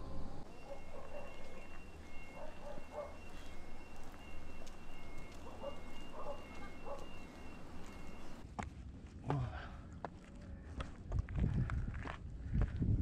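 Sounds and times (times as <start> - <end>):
low clucking calls: 0.4 - 8.4.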